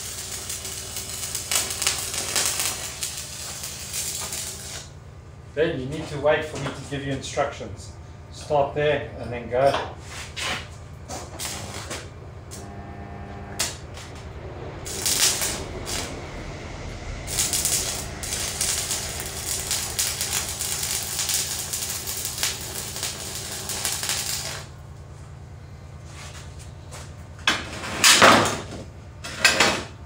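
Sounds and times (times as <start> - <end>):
welding arc crackling: 0.0 - 5.0, 11.0 - 16.4, 17.2 - 25.2
low hum: 0.2 - 27.5.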